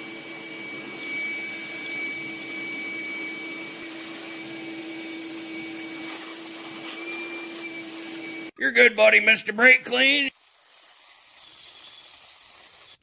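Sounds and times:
shop vacuum running: 0.0 - 8.6.

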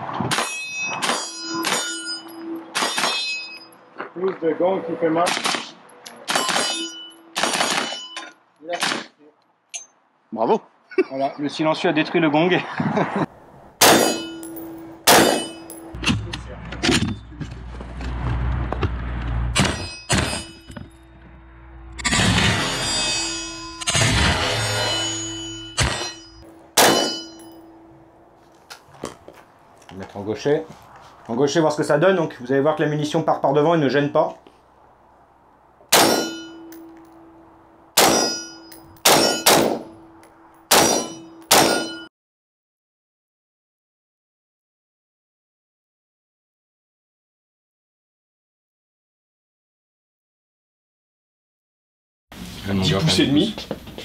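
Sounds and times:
metallic ring: 0.4 - 3.9, 6.0 - 8.4, 13.9 - 16.0, 19.6 - 28.1, 36.0 - 37.4, 38.0 - 42.1
rifle shots: 5.2 - 6.8, 7.4 - 8.0, 13.8 - 14.4, 15.1 - 15.6, 26.8 - 27.4, 35.9 - 36.4, 38.0 - 38.4, 39.0 - 39.9, 40.7 - 42.0
suppressed rifle shots: 13.8 - 14.3, 26.8 - 27.2, 39.0 - 39.9, 40.7 - 41.9.

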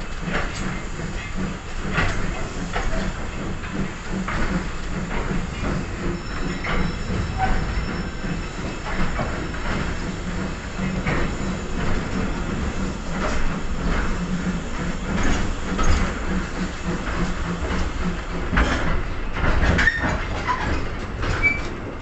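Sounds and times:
wheels clattering on rails: 0.0 - 22.0
wheel squeal: 5.2 - 12.6, 21.4 - 21.8.

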